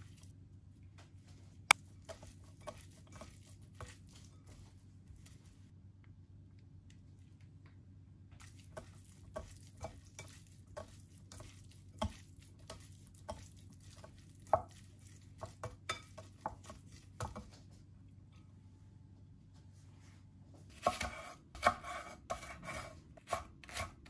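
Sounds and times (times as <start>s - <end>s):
wet squishes of meat being tossed: 8.4s - 17.5s.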